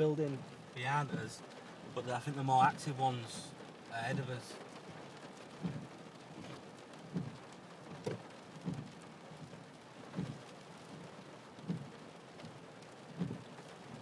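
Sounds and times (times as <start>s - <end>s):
rain on car windscreen: 0.0s - 14.0s
windscreen wipers sweeping: 0.2s - 14.0s
wiper dull thud: 4.0s - 12.0s, 13.1s - 14.0s.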